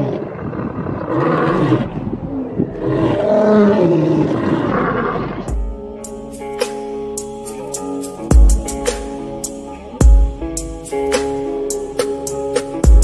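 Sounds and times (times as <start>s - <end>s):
lions roaring: 0.0s - 5.9s.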